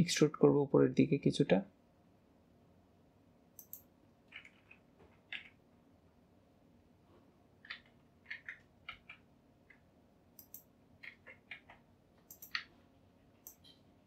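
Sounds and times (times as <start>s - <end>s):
mouse and keyboard clicking: 3.6s - 5.6s, 7.6s - 9.8s, 10.4s - 12.7s.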